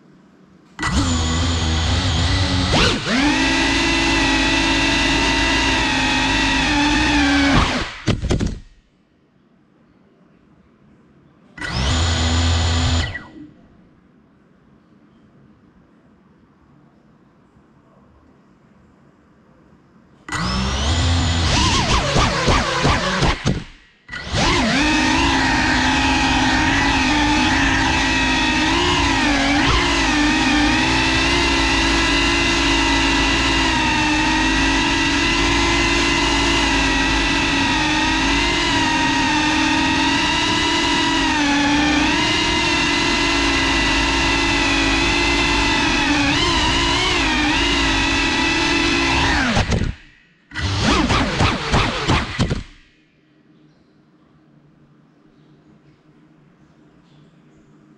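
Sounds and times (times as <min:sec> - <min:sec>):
drone propellers whining: 0:00.8 - 0:08.6, 0:20.3 - 0:52.9.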